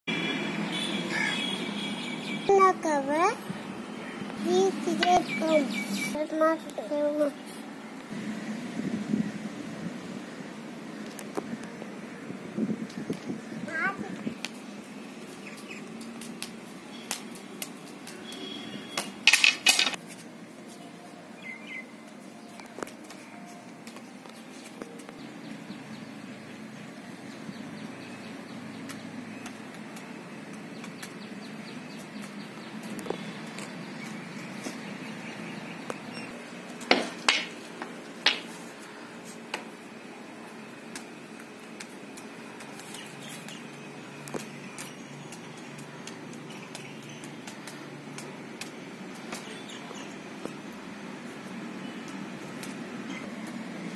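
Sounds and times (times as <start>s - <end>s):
stick clicks and knocks: 19.0s - 20.0s, 36.8s - 38.5s
sharp knocks: 36.9s - 37.6s.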